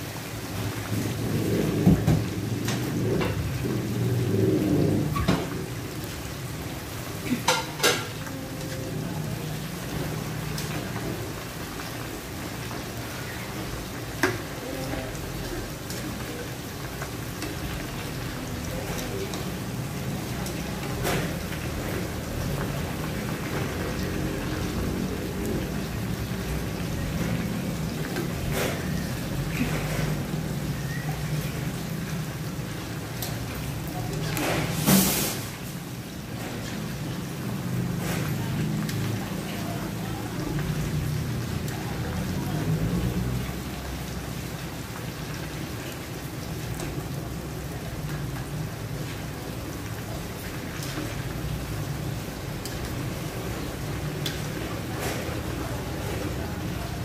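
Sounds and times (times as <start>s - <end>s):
oil sizzling and bubbling: 0.0s - 57.0s.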